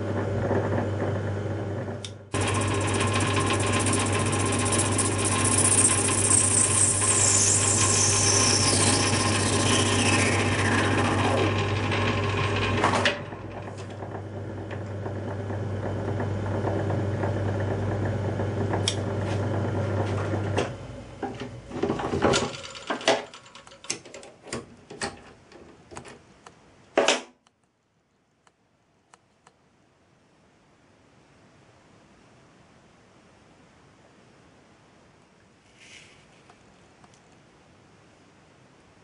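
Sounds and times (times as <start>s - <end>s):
lathe motor humming: 0.0s - 23.7s
lathe cutting metal: 2.4s - 20.6s.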